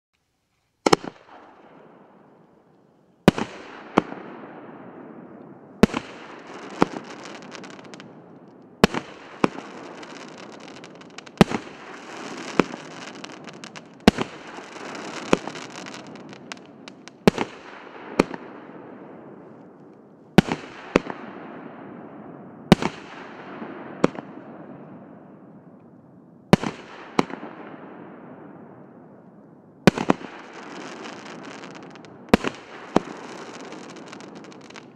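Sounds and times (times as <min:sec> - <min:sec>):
fireworks bangs: 0:00.8 - 0:25.8, 0:26.5 - 0:34.9
fireworks hiss: 0:08.8 - 0:17.7, 0:30.1 - 0:34.9.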